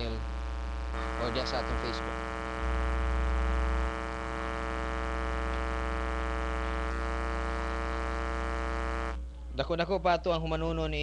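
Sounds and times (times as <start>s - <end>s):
speech: 0.0s - 0.2s, 1.2s - 2.1s, 9.4s - 11.0s
electrical mains hum: 0.0s - 11.0s.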